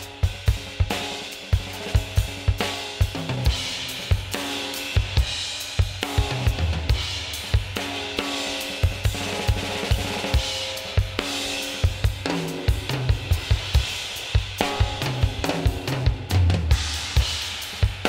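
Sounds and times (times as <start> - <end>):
cymbals: 0.0 - 18.0.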